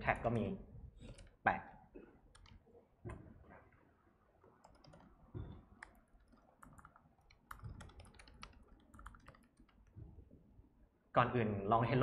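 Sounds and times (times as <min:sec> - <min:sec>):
typing on laptop keyboard: 0:02.3 - 0:02.6, 0:04.5 - 0:10.0.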